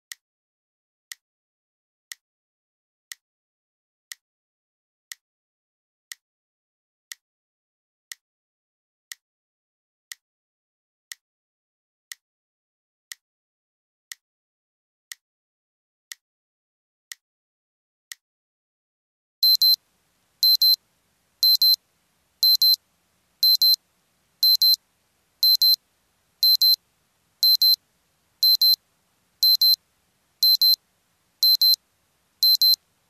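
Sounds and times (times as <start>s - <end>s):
digital alarm beeping: 19.4s - 19.8s, 20.4s - 20.8s, 21.4s - 21.8s, 22.4s - 22.8s, 23.4s - 23.8s, 24.4s - 24.8s, 25.4s - 25.8s, 26.4s - 26.8s, 27.4s - 27.8s, 28.4s - 28.8s, 29.4s - 29.8s, 30.4s - 30.8s, 31.4s - 31.8s, 32.4s - 32.8s.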